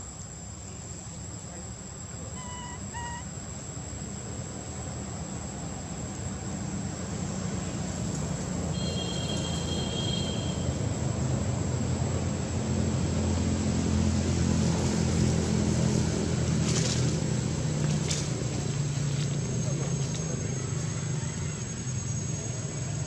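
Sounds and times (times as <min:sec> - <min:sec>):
motor engine droning: 0:06.7 - 0:23.0.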